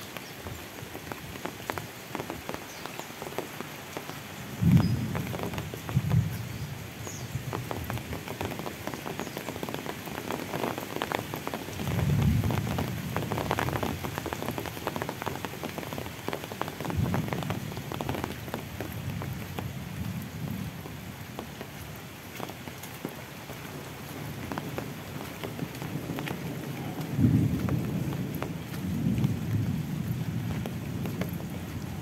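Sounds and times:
rain on pavement and foliage: 0:00.0 - 0:32.0.

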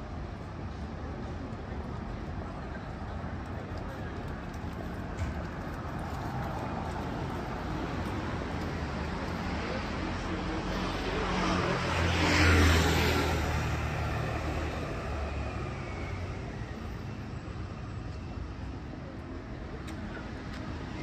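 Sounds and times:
street traffic: 0:00.0 - 0:21.0
vehicle passing by: 0:06.4 - 0:16.4.

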